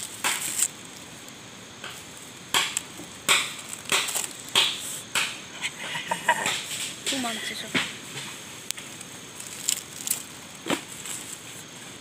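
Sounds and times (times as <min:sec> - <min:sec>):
corn husk tearing and crackling: 0:00.0 - 0:05.0, 0:08.6 - 0:12.0.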